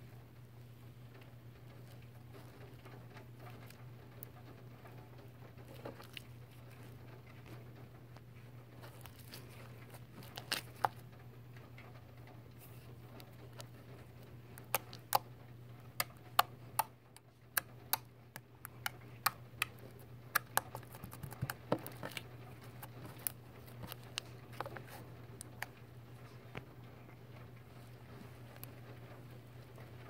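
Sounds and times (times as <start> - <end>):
low steady hum: 0.0 - 30.0
slime clicking and popping: 14.6 - 15.3, 16.0 - 25.8.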